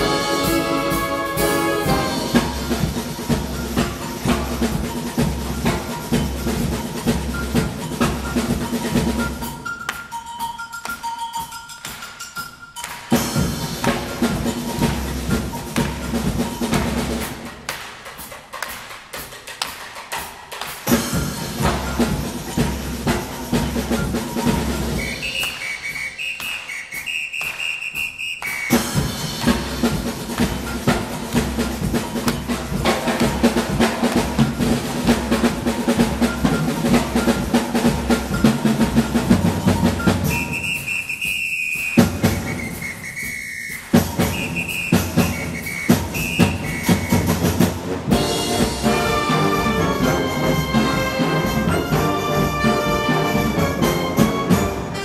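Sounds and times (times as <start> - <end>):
wind band with brass playing: 0.0 - 4.7, 28.7 - 55.0
drum kit playing latin groove: 0.0 - 26.0, 28.7 - 55.0
two-pitch whistle calls: 24.8 - 29.0, 39.6 - 47.7.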